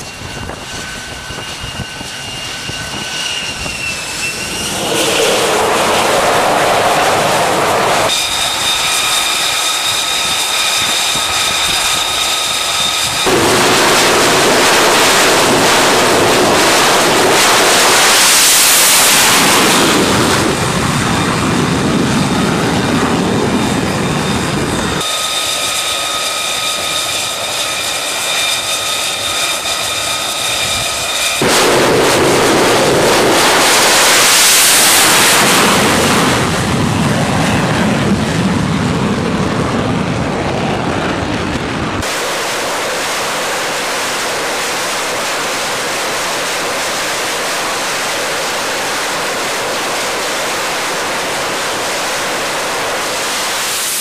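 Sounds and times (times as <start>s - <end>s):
jet engine whining: 0.0s - 54.0s
rushing jet roar: 0.0s - 54.0s.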